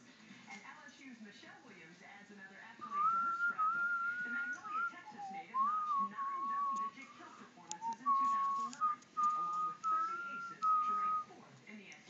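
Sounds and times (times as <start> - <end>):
person whistling a tune: 2.8 - 7.0, 7.8 - 11.2.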